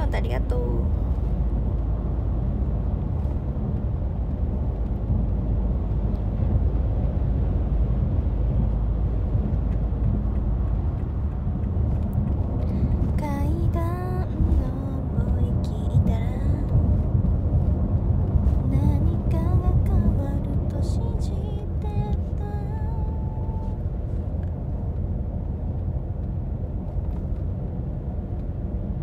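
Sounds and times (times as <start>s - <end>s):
person speaking: 0.0s - 0.9s
road vehicle rumble inside cabin: 0.0s - 29.0s.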